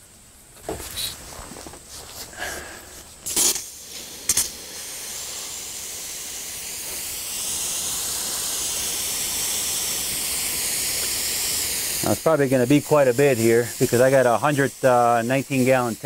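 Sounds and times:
hose nozzle spraying water: 3.2s - 16.0s.

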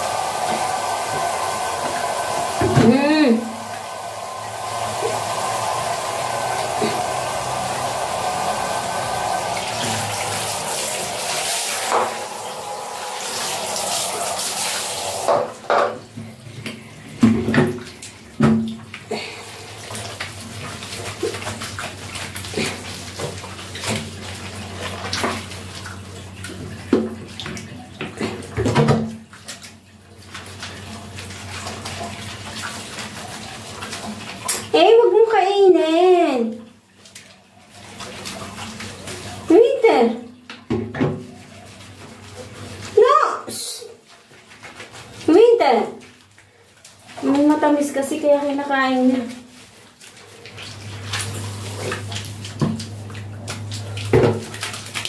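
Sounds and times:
small water splashes: 0.0s - 55.0s
water running from shower: 0.0s - 55.0s
hands rubbing shampoo into fur: 4.6s - 15.3s.

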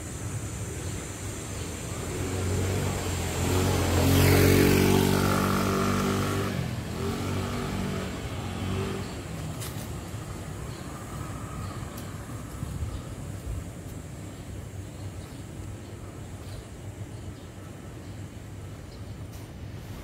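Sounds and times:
motorcycle passing by: 1.7s - 13.0s.

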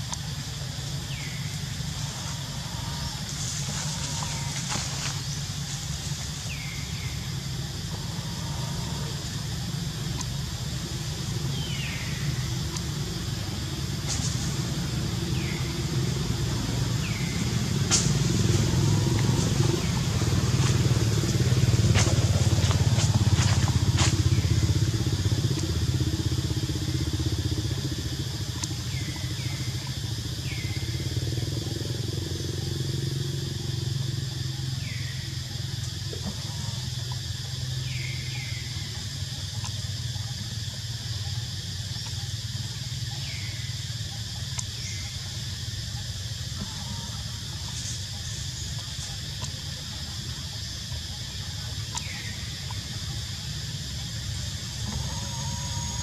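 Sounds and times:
vehicle engine drone: 0.0s - 56.0s.

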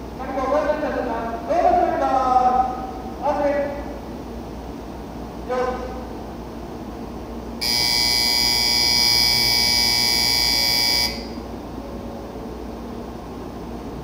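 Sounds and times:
electronic platform bell ringing: 7.6s - 11.4s.

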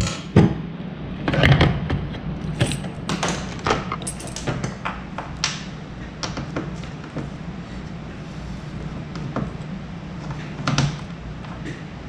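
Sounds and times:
low steady hum: 0.0s - 12.0s
metal tools clinking on workbench: 2.5s - 3.0s, 3.9s - 4.7s.

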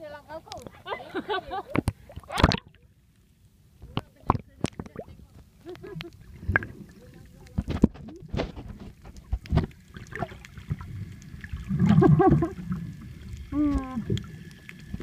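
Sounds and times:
underwater water movement: 0.5s - 15.0s.

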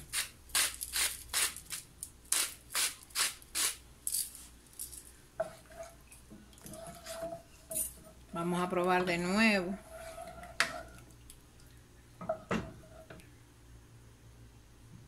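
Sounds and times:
wooden spoon stirring liquid: 5.4s - 8.4s, 9.1s - 13.2s.

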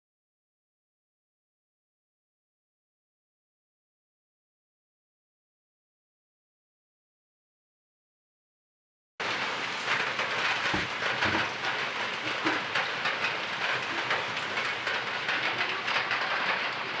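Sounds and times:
pot boiling and bubbling: 9.2s - 17.0s.

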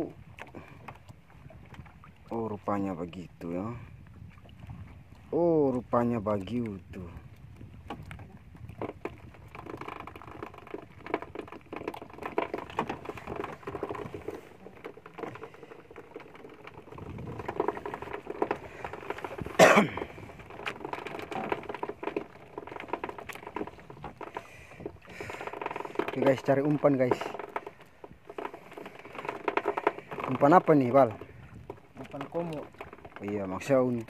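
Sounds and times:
person coughing: 19.6s - 20.1s
small knocks and clicks: 20.5s - 34.0s.

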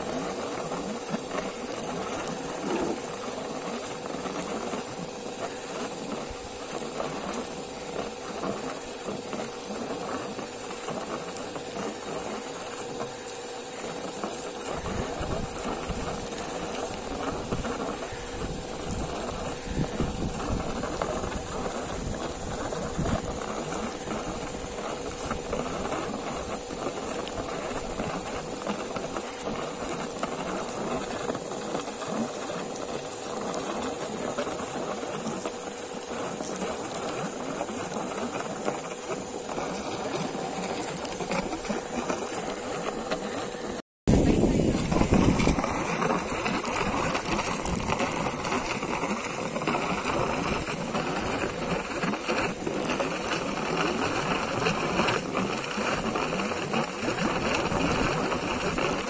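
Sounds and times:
air compressor running: 0.0s - 59.0s
pipe sputtering air and water: 0.0s - 59.0s.

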